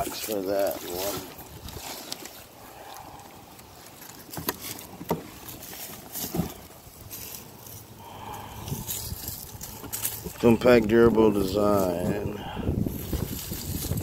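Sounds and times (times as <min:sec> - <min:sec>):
cardboard scraping rustles: 0:00.0 - 0:02.6, 0:03.6 - 0:07.9, 0:12.8 - 0:14.0.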